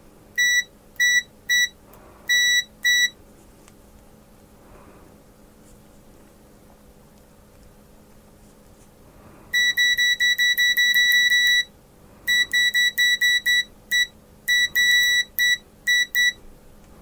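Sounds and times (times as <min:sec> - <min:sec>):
multimeter continuity beeping: 0:00.4 - 0:03.2, 0:09.5 - 0:11.7, 0:12.3 - 0:16.4.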